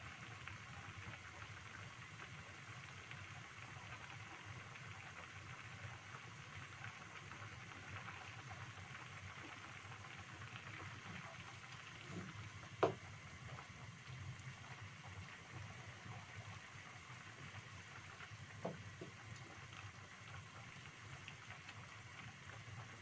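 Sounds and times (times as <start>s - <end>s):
soup bubbling in a pan: 0.0s - 23.0s
wooden spatula knocking pan: 12.8s - 13.0s.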